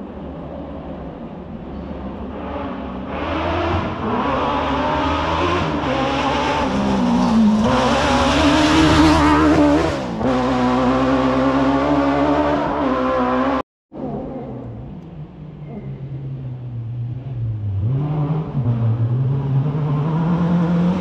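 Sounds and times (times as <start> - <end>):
rally car engine at full throttle: 0.0 - 21.0.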